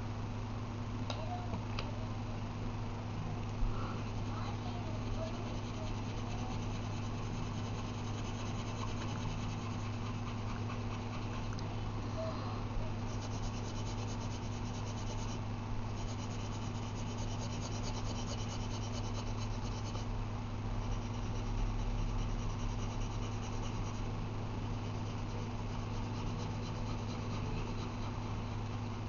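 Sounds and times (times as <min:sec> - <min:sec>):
pencil scratching on paper: 0:04.1 - 0:11.5, 0:13.0 - 0:20.1, 0:20.8 - 0:24.1, 0:24.7 - 0:29.0.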